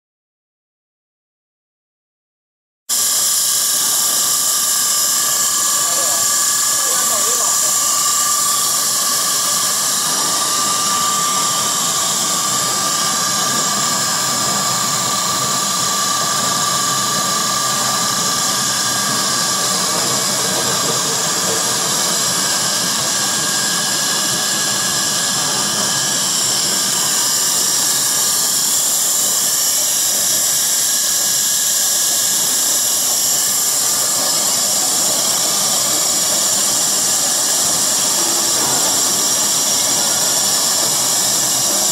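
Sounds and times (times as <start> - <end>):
extruder machine hissing whine: 2.9 - 41.9.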